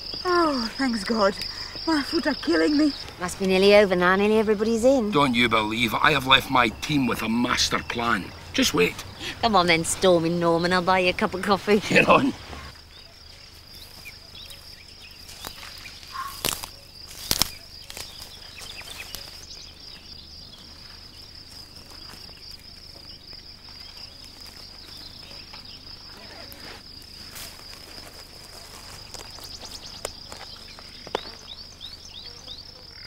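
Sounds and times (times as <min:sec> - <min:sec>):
insects chirring: 0:00.0 - 0:33.0
footsteps through dry undergrowth: 0:11.9 - 0:32.1
sharp cracks: 0:16.2 - 0:18.3.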